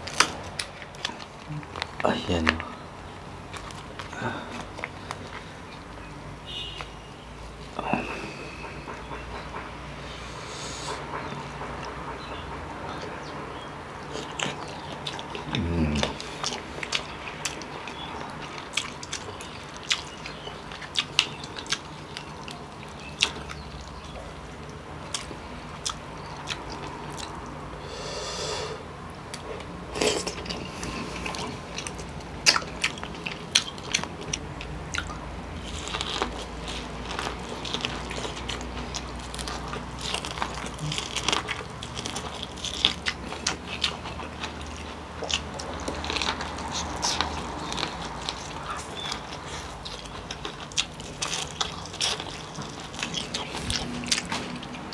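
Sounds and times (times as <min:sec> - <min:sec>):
wet chewing and smacking: 0:00.0 - 0:10.2, 0:10.8 - 0:27.8, 0:29.1 - 0:54.9.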